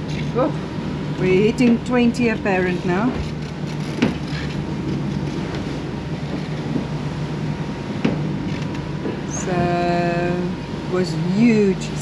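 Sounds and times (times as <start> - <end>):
low drone: 0.0 - 12.0
rushing wind and water: 0.0 - 12.0
sharp knocks: 8.0 - 8.3.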